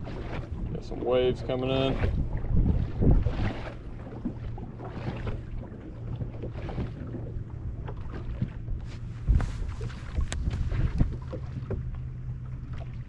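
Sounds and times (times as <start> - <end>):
wind buffeting microphone: 0.0 - 12.4
waves slapping boat hull: 0.0 - 13.0
steady low hum: 3.8 - 13.0.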